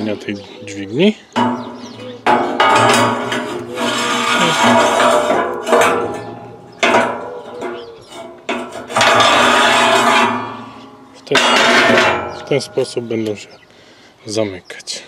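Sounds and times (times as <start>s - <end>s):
metal door grinding and clanking: 1.4s - 12.6s.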